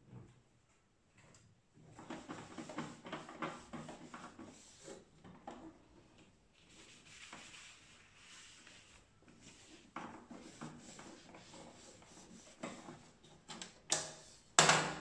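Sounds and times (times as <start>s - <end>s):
cloth wiping plastic: 2.0s - 5.6s, 6.5s - 13.5s.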